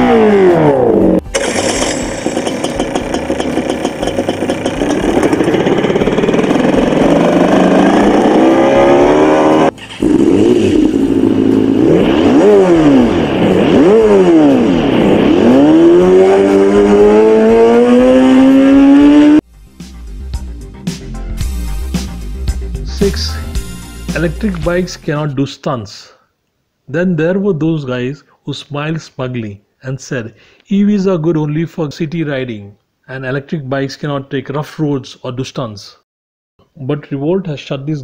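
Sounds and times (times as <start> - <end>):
artificial motorcycle engine revving: 0.0 - 19.4.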